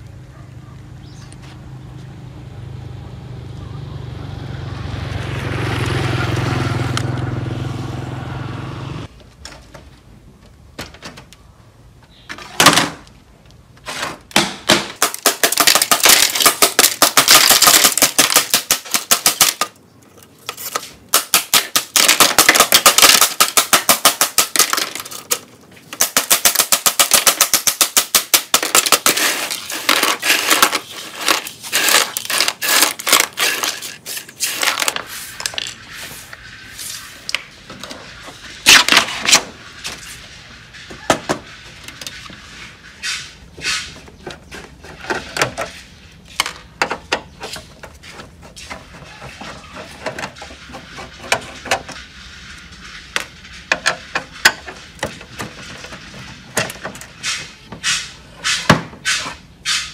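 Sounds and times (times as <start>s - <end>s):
broom sweeping glass shards: 29.0s - 37.4s.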